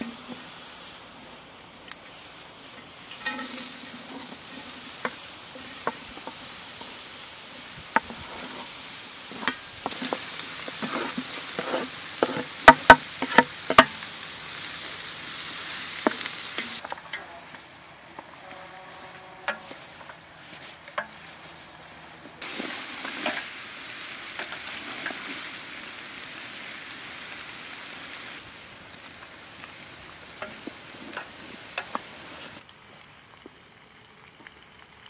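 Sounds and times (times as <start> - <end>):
onions sizzling: 0.0 - 35.0
spoon scraping and knocking pot: 9.3 - 13.9.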